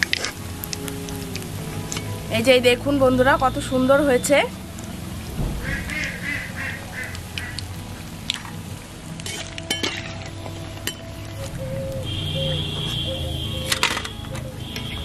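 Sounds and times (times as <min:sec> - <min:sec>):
quack-like animal calls: 0:05.6 - 0:07.6.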